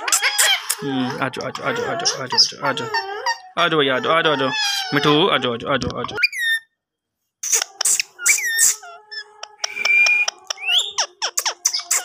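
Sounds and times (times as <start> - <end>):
parakeet clicks and chirping whistles: 9.4 - 12.0.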